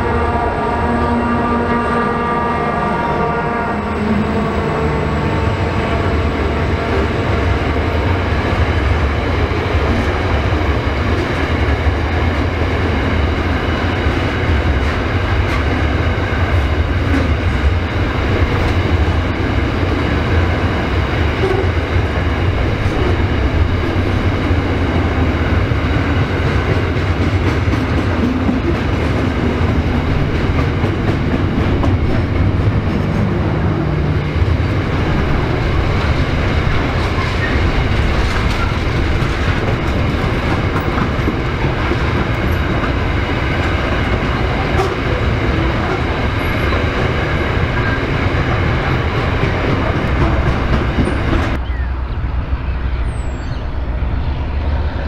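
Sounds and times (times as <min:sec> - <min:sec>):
freight train rumbling past: 0:00.0 - 0:55.0.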